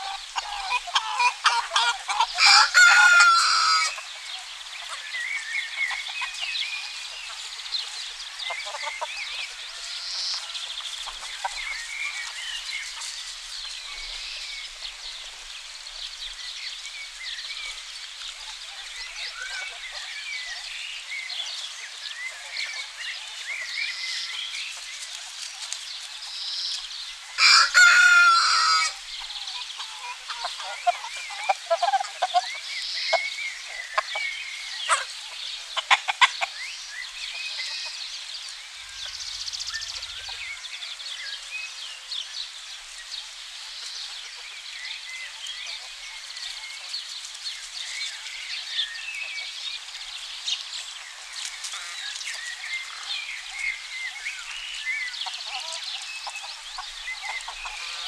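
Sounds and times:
hens clucking: 0:00.0 - 0:15.4, 0:27.3 - 0:38.3, 0:54.4 - 0:58.0
rooster crowing: 0:02.3 - 0:04.0, 0:27.4 - 0:29.0
small birds chirping: 0:03.5 - 0:27.4, 0:28.4 - 0:58.0.

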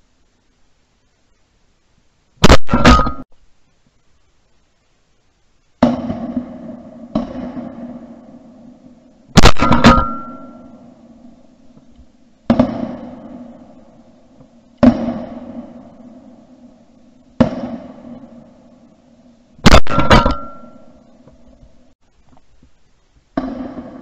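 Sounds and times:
shotguns firing with echo: 0:02.4 - 0:03.2, 0:05.8 - 0:21.5, 0:23.4 - 0:24.0.

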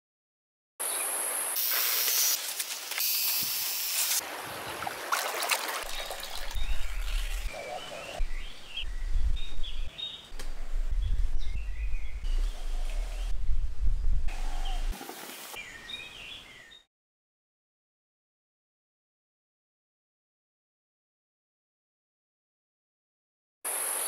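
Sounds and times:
rushing river water: 0:04.2 - 0:07.6
small birds chirping: 0:05.8 - 0:13.4, 0:14.3 - 0:16.9.

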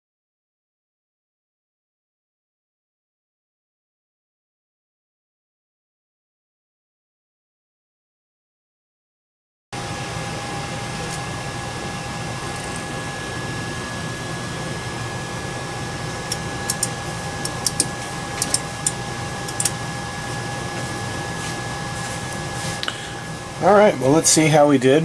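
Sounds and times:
high whine: 0:09.8 - 0:25.0
printer fans humming: 0:09.8 - 0:25.0
sharp clicks: 0:16.3 - 0:19.8.

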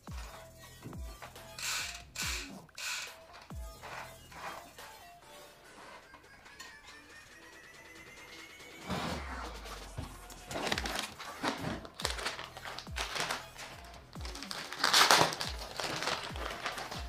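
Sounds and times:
background music with steady beat: 0:00.0 - 0:17.0
cardboard rustling: 0:03.3 - 0:04.8, 0:08.8 - 0:17.0
plastic wrapping crinkling: 0:09.8 - 0:17.0.

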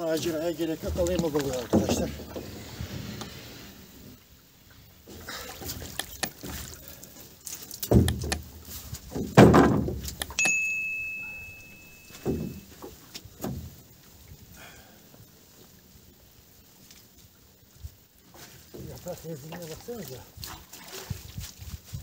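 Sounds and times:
wet net thumping against boat hull: 0:07.8 - 0:08.5, 0:09.1 - 0:10.4
steady high beep: 0:10.4 - 0:12.7.

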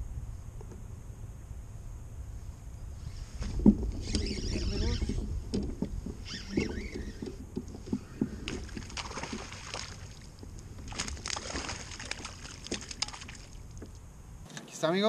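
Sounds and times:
water sloshing and splashing: 0:03.6 - 0:14.0
fish thrashing at surface: 0:08.1 - 0:13.6.

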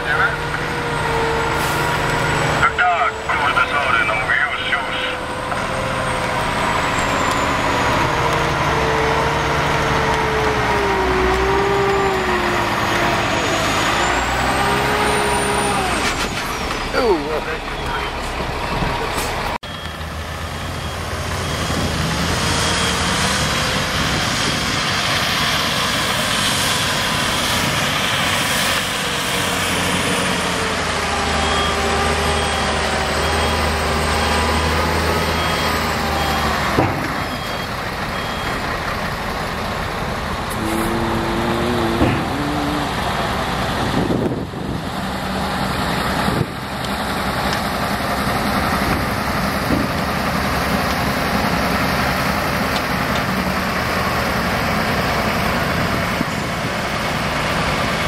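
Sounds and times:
dump truck diesel engine running: 0:00.0 - 0:58.0
reversing alarm beeping: 0:16.9 - 0:23.2, 0:31.0 - 0:36.6, 0:37.2 - 0:38.8.

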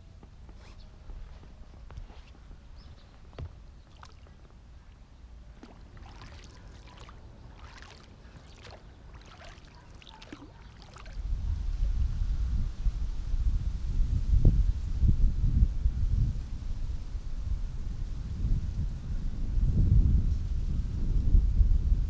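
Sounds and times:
wind buffeting microphone: 0:01.0 - 0:22.0
water lapping at bank: 0:03.1 - 0:11.3.

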